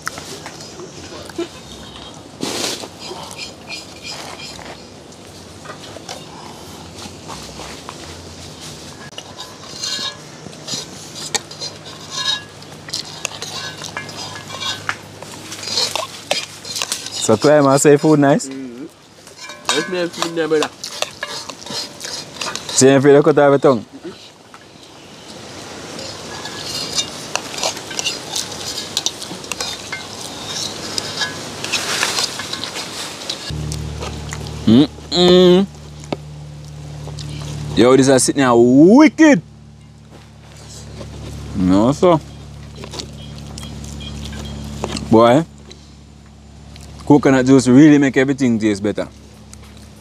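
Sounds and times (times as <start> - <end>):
spoon scraping metal pot: 2.9 - 4.6, 9.0 - 18.4, 19.3 - 22.9, 25.1 - 33.6
spoon clinking on pot: 19.4 - 22.7.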